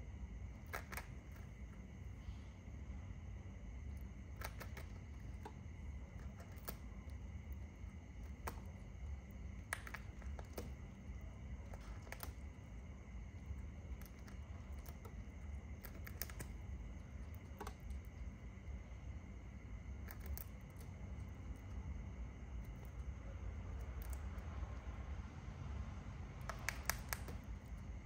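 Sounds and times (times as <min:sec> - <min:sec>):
low background rumble: 0:00.0 - 0:28.0
small clicks and snaps of tearing: 0:00.6 - 0:01.5, 0:04.0 - 0:12.6, 0:13.4 - 0:18.3, 0:19.9 - 0:21.8, 0:23.7 - 0:24.8, 0:26.3 - 0:28.0.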